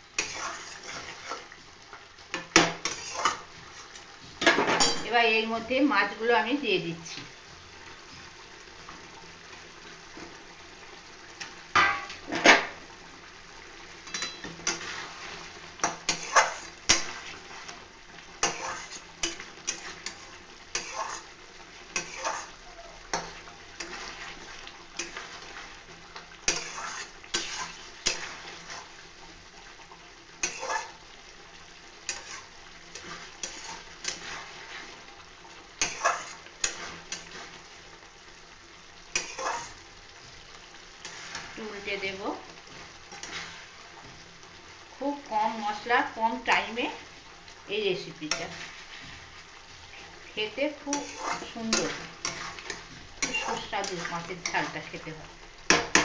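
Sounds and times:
gravy sizzling: 0.0s - 56.0s
metal spatula scraping a pot: 0.2s - 1.6s, 2.3s - 4.0s, 14.1s - 17.8s, 18.4s - 29.0s, 30.4s - 31.1s, 32.0s - 35.0s, 35.8s - 37.6s, 39.1s - 39.8s, 40.9s - 41.7s, 42.7s - 44.2s, 48.2s - 49.3s, 50.8s - 55.0s.

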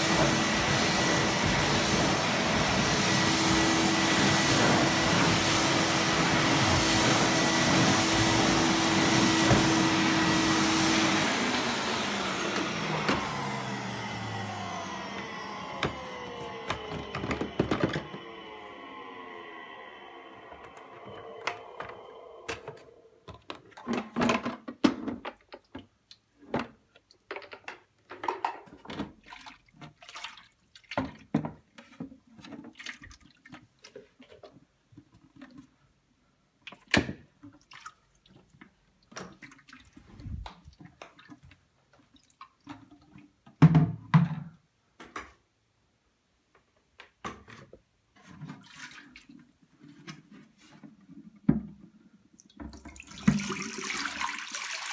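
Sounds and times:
vacuum motor whine winding down: 0.0s - 23.3s.

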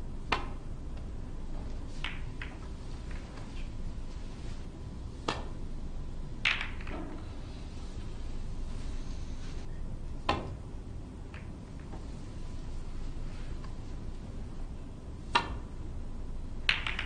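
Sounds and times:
low room hum: 0.0s - 17.0s
snooker balls clicking: 0.2s - 3.7s, 6.4s - 7.3s, 11.2s - 12.0s, 16.6s - 17.0s.

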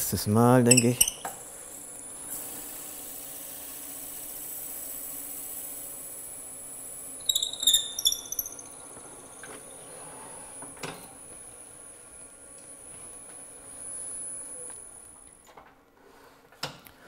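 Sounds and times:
drill bit squealing in wood: 0.7s - 1.3s, 7.2s - 8.8s.

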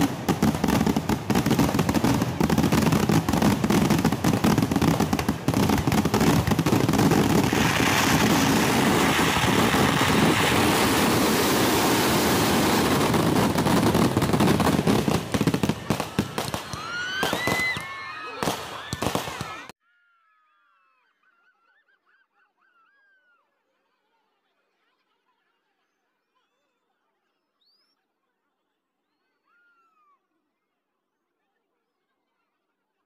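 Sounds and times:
firework whistles: 0.0s - 19.7s
fireworks cracks and bangs: 0.0s - 19.7s.

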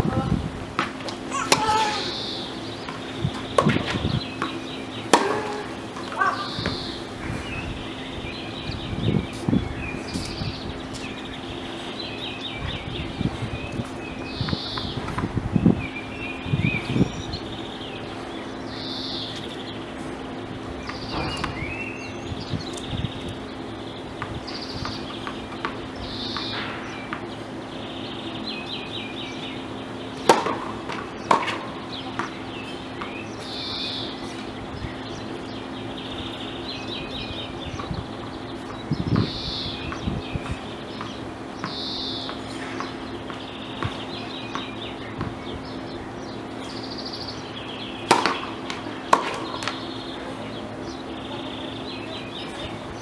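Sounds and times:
birds chirping: 0.0s - 53.0s
outdoor background noise: 0.0s - 53.0s
tennis ball hits: 0.8s - 2.1s, 2.9s - 6.8s, 30.2s - 32.4s, 48.0s - 49.9s.

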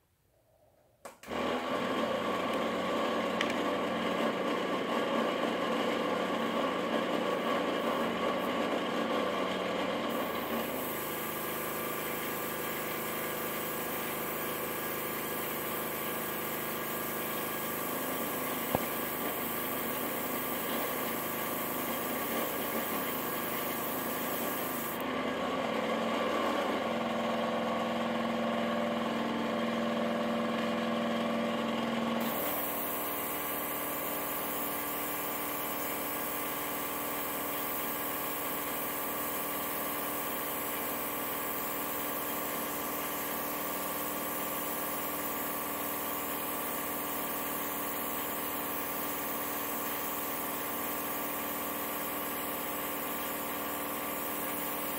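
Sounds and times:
compressor humming: 7.8s - 25.2s, 32.2s - 54.9s
airbrush hissing: 10.1s - 25.0s, 32.2s - 46.0s.

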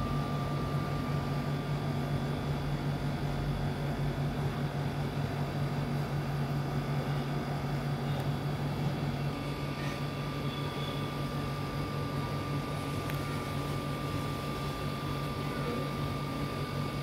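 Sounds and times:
thin high whine: 0.0s - 2.2s, 8.9s - 17.0s
low mechanical drone: 0.0s - 17.0s.

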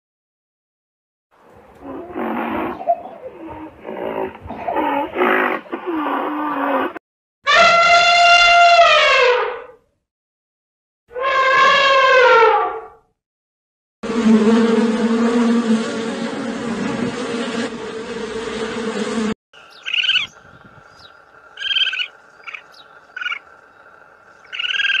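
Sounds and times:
bees buzzing: 14.1s - 25.0s
short high chirping calls: 19.6s - 25.0s.

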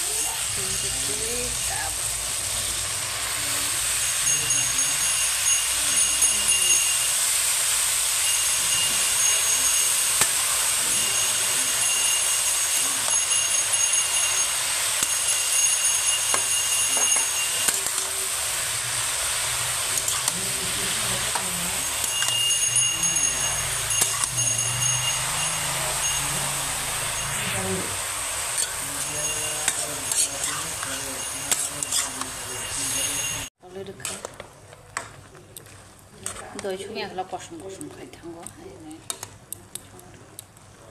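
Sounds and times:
mushrooms sizzling in a pan: 0.0s - 33.6s
stirring scrapes and clicks: 28.6s - 32.4s, 34.0s - 36.8s.

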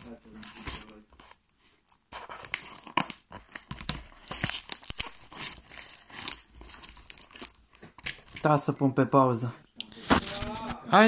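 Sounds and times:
packing tape and paper tearing: 0.0s - 8.6s.

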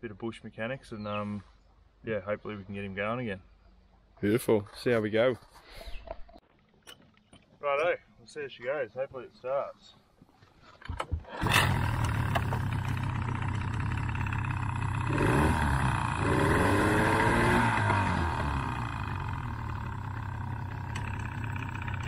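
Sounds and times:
outboard motor running: 11.4s - 22.0s.

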